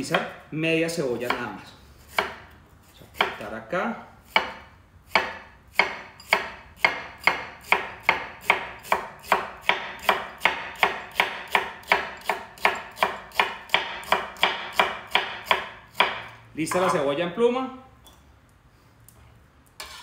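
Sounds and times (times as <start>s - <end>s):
knife chopping on wooden board: 0.0s - 0.4s, 1.2s - 2.5s, 3.1s - 3.4s, 4.3s - 17.0s.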